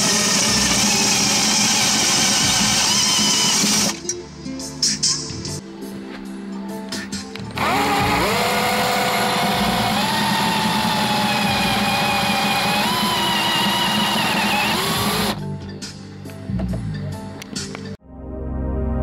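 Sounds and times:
electric drill whining: 0.0s - 4.0s, 7.6s - 15.4s
background music: 0.0s - 19.0s.

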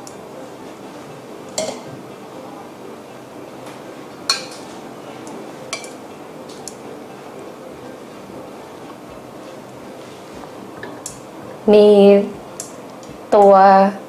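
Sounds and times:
low room hiss: 0.0s - 14.0s
metal tongs clinking on plate: 1.6s - 1.9s, 4.3s - 4.6s.

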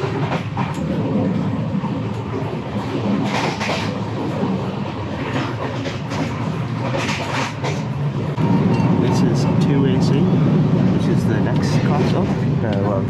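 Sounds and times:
train coach running noise: 0.0s - 13.0s.

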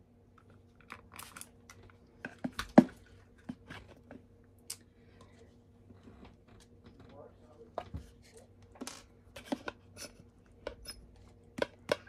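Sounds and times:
plastic cups clicking and tapping: 0.4s - 4.2s, 8.8s - 10.0s, 10.6s - 12.0s.

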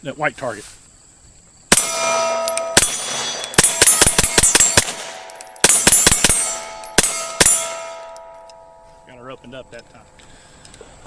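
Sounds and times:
pistol shots: 1.7s - 8.6s
metallic ringing: 1.7s - 10.2s.

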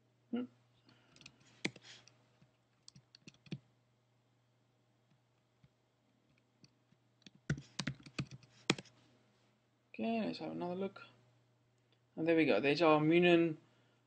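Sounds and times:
computer keyboard keys clicking: 7.2s - 8.9s.

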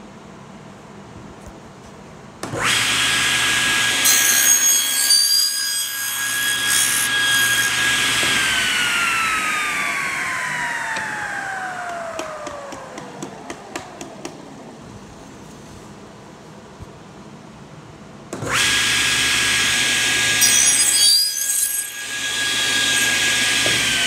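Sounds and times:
saw cutting board: 2.6s - 14.4s, 18.4s - 24.0s
table saw blade whine: 2.6s - 14.6s, 18.4s - 24.0s.

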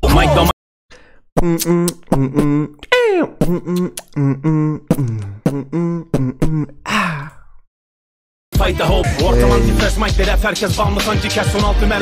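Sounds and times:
short vocal-like notes: 1.4s - 7.4s, 9.1s - 10.1s.

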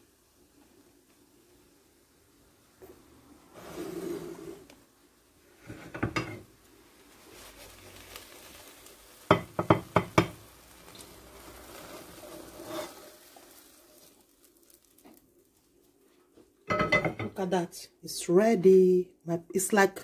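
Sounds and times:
frying pan clinking on ceramic plate: 16.7s - 17.4s.

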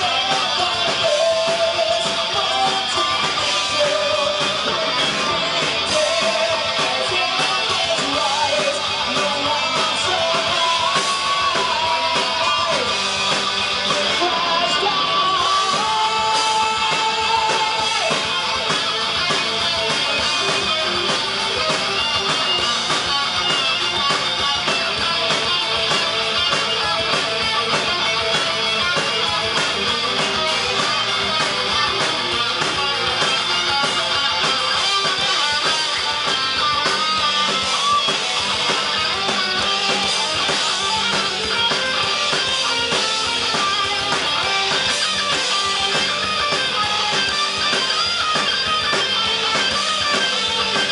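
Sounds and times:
heavy metal band playing: 0.0s - 50.9s.

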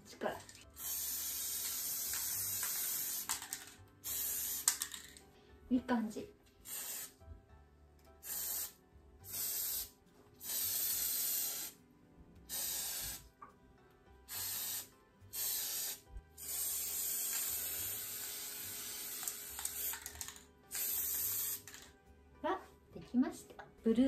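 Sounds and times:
spray can hissing: 0.8s - 5.2s, 6.6s - 7.2s, 8.2s - 11.8s, 12.5s - 13.3s, 14.3s - 21.9s.

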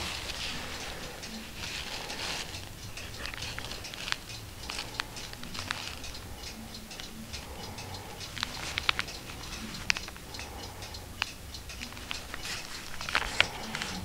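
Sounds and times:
sharp little ticks: 0.0s - 14.0s
fingers rustling paper pages: 1.5s - 2.6s, 3.2s - 6.0s, 12.0s - 14.0s.

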